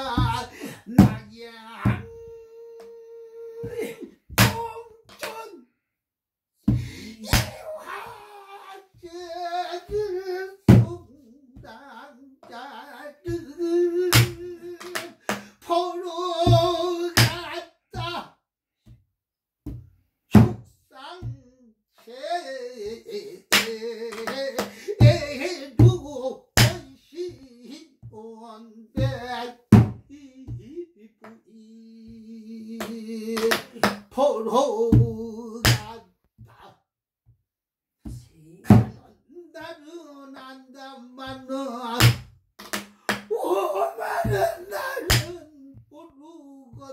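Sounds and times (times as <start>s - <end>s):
person singing with vibrato: 0.0s - 5.6s, 6.8s - 18.3s, 20.4s - 36.7s, 38.4s - 42.2s, 43.3s - 46.9s.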